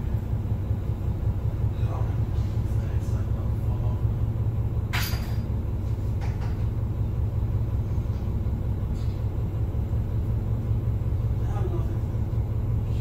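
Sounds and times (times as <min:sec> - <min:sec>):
bus diesel engine idling: 0:00.0 - 0:13.0.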